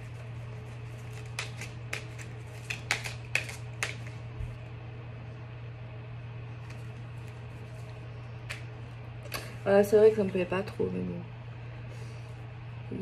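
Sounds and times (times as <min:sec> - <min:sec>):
cards being shuffled: 0:00.0 - 0:04.5, 0:06.6 - 0:09.4.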